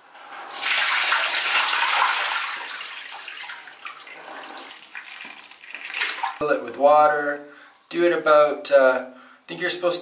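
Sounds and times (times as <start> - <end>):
water splashing onto tiled floor: 0.6 - 6.4.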